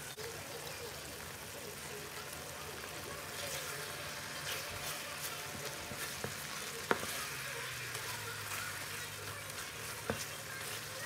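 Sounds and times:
syrup sizzling and crackling in a wok: 0.0 - 11.0
wooden spoon stirring: 2.2 - 11.0.

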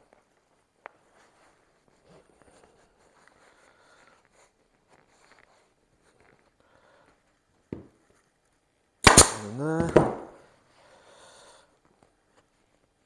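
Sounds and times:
staple gun firing: 9.0 - 10.3.

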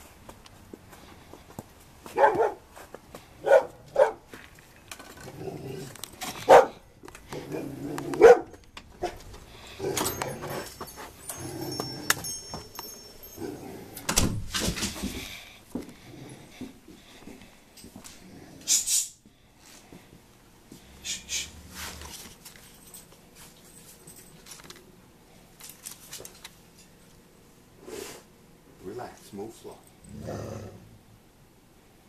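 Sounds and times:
large dog barking: 2.1 - 2.6, 3.4 - 4.2, 6.4 - 6.8, 7.4 - 9.2.

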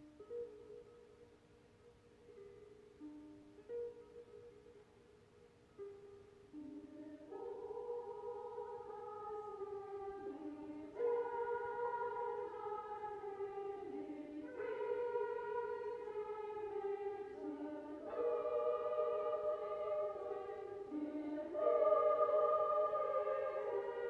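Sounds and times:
choir singing a carol: 6.8 - 24.0.

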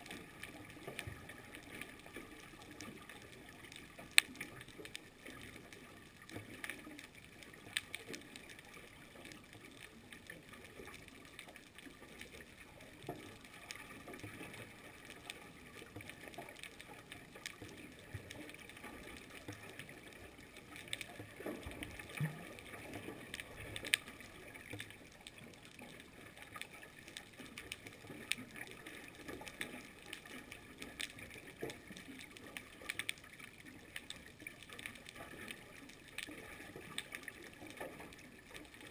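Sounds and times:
underwater clicks and crackles: 0.0 - 38.9.

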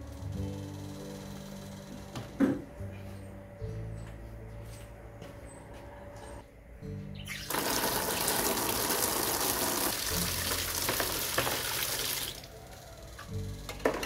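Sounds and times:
water pouring into a basin: 7.4 - 12.5.

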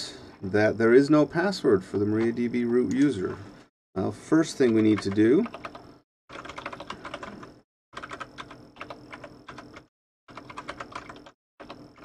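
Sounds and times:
typing on computer keyboard: 4.7 - 12.0.

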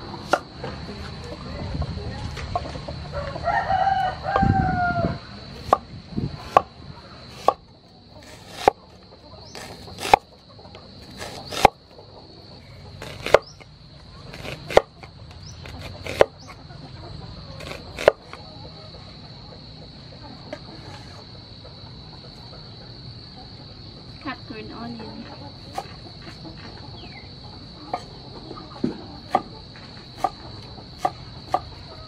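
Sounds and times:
rooster crowing: 3.0 - 5.5
knife slicing on wooden board: 8.2 - 8.8, 9.5 - 10.3, 11.0 - 11.8, 13.0 - 13.6, 14.3 - 15.0, 15.6 - 16.4, 17.6 - 18.4.

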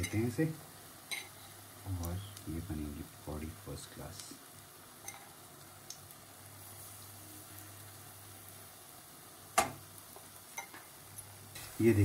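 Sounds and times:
food sizzling in oil: 0.0 - 12.0
spoon knocking on pan: 9.6 - 9.8.

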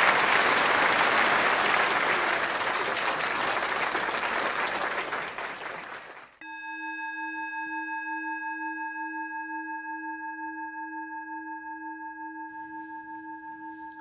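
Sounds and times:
bell-like tone ringing: 6.4 - 14.0.

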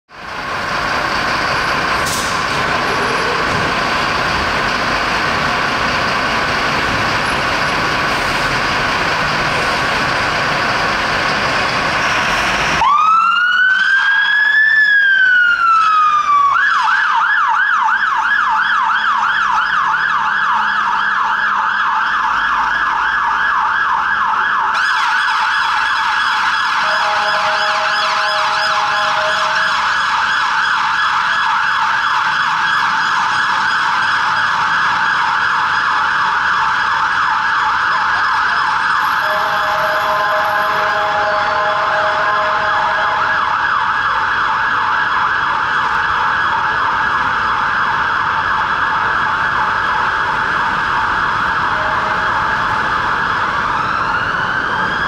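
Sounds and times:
engine noise: 0.1 - 13.3, 39.0 - 55.0
fire engine siren wailing and yelping: 0.1 - 55.0
steady siren tone: 1.2 - 55.0.

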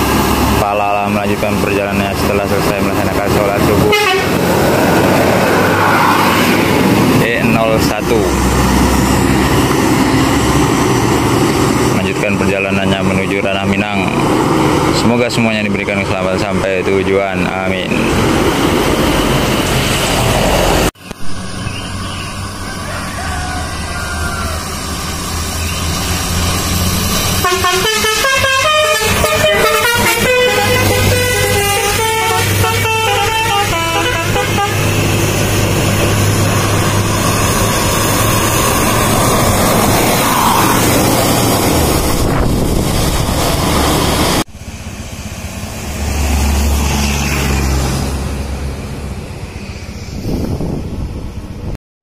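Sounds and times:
bus engine: 0.0 - 51.8
bus engine rumbling: 0.0 - 51.8
tyres on wet road: 0.0 - 51.8
musical air horn: 3.8 - 4.4, 27.3 - 35.2.

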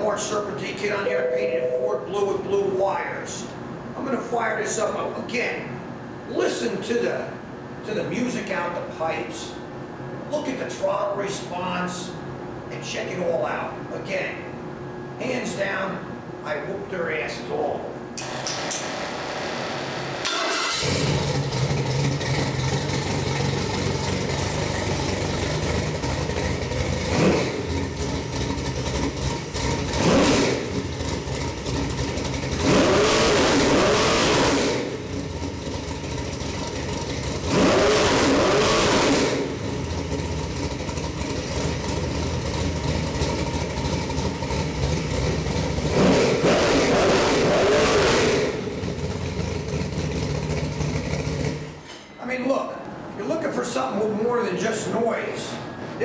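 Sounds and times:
car engine idling and revving: 18.2 - 51.8.

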